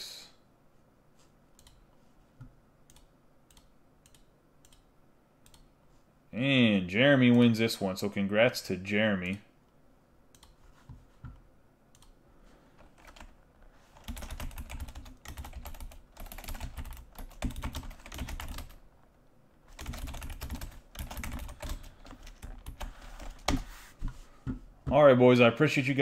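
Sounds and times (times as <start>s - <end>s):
typing on computer keyboard: 12.8s - 13.3s, 14.0s - 18.8s, 19.7s - 23.6s.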